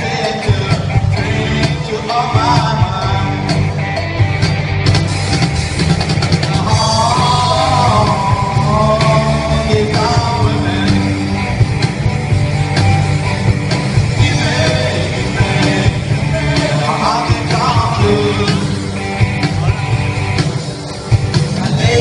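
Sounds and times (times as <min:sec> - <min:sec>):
person singing: 0:00.0 - 0:03.8, 0:06.4 - 0:11.4, 0:14.1 - 0:19.0, 0:21.5 - 0:22.0
bass guitar: 0:00.0 - 0:22.0
drum kit: 0:00.0 - 0:22.0
electric guitars: 0:00.0 - 0:22.0.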